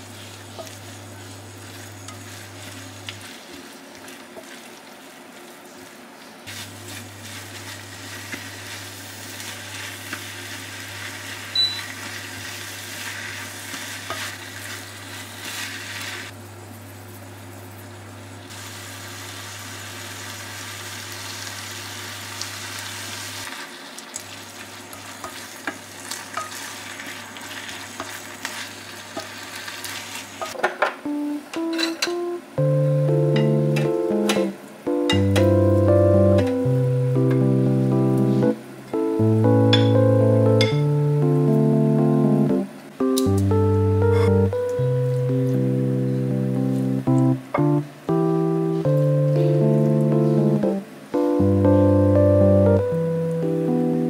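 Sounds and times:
vegetables sizzling in a frying pan: 0.0s - 32.1s.

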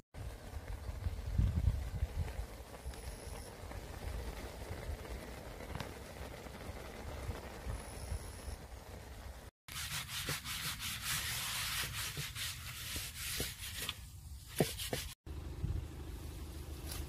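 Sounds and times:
leaves scrubbing on iron griddle: 9.0s - 15.2s, 16.2s - 17.0s.

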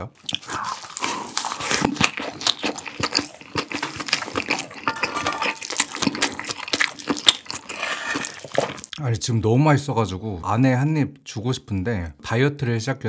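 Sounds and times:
wet chewing with crunches: 0.1s - 9.0s
wooden spoon scraping a pan: 3.8s - 6.2s.

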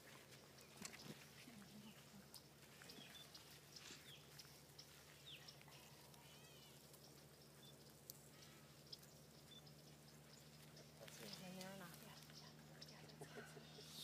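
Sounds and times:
steady low hum: 0.0s - 14.0s
faint high chirps: 2.8s - 11.5s.

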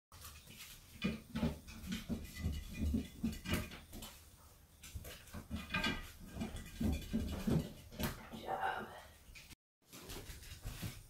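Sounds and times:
dog paws thumping on wood: 0.2s - 8.6s.

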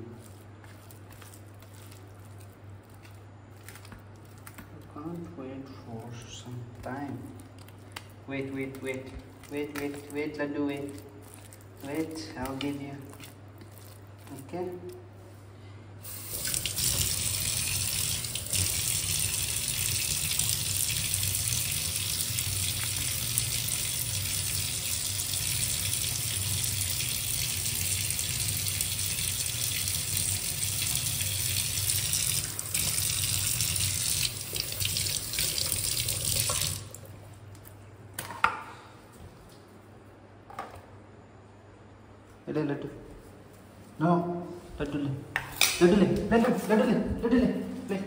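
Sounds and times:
tap water running into pan: 16.1s - 37.0s.

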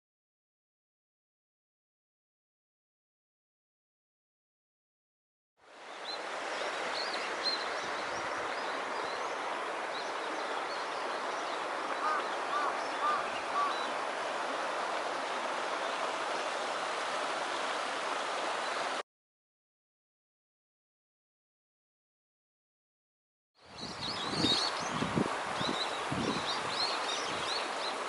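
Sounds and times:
creek running: 5.6s - 19.0s, 23.6s - 28.0s.

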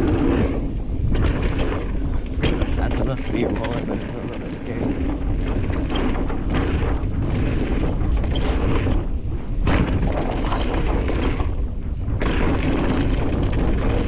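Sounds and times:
bike knocking and rattling: 0.0s - 14.0s
wind on microphone: 0.0s - 14.0s
bike tyres on dirt: 4.9s - 14.0s.

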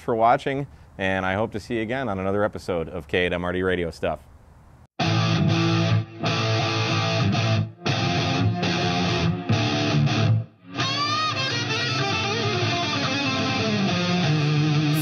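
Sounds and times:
bending guitar notes: 5.0s - 15.0s
rock music with electric guitar: 5.0s - 15.0s.

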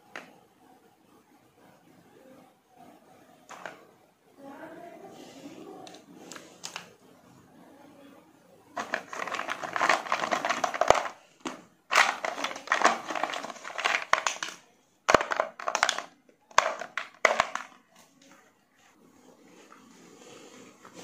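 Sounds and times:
plastic toys clattering: 3.5s - 3.8s, 8.8s - 18.4s.

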